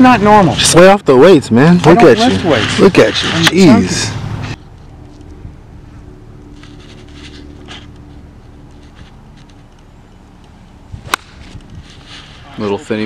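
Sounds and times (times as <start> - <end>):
golf club striking ball: 11.0 - 11.6.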